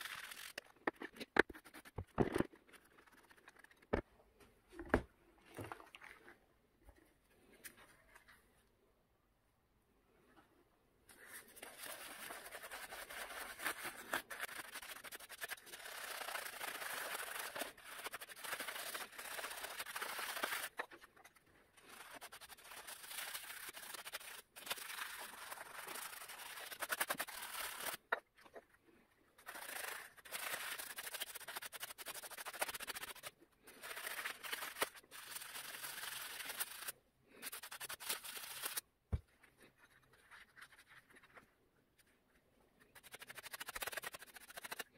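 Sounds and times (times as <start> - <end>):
stiff brush scrubbing: 11.2 - 28.0, 29.4 - 38.8, 42.8 - 44.9.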